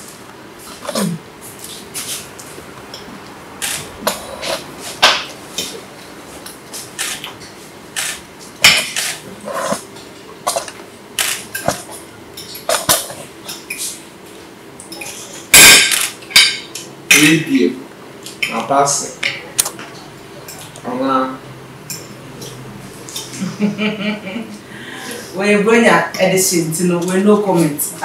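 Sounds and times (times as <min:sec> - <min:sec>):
forks clinking on plates: 0:14.9 - 0:17.4.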